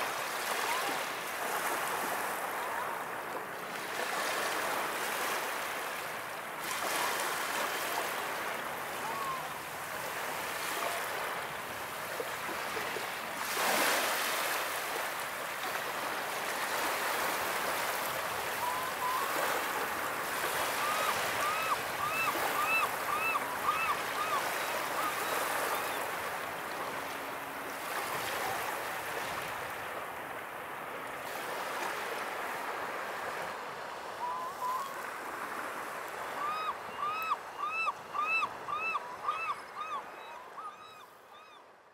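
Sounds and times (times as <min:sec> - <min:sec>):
gulls calling: 0:08.9 - 0:09.7, 0:18.5 - 0:27.1, 0:34.2 - 0:35.1, 0:36.1 - 0:41.6.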